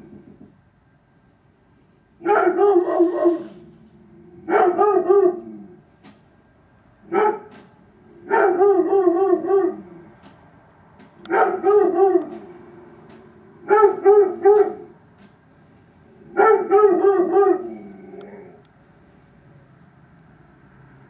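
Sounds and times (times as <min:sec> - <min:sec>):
dog barking: 0:02.2 - 0:03.6, 0:04.5 - 0:05.5, 0:07.1 - 0:07.6, 0:08.2 - 0:09.9, 0:11.2 - 0:12.5, 0:13.6 - 0:14.9, 0:16.3 - 0:17.8.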